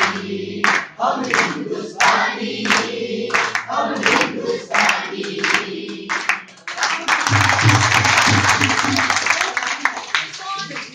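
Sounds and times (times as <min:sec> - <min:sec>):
group singing: 0:00.0 - 0:06.5
rhythmic hand clapping: 0:00.0 - 0:10.9.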